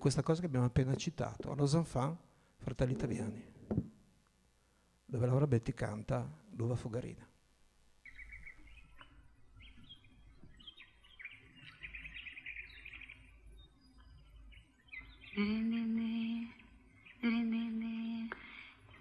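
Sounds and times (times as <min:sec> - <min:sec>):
birds chirping over speakers: 0:08.0 - 0:19.0.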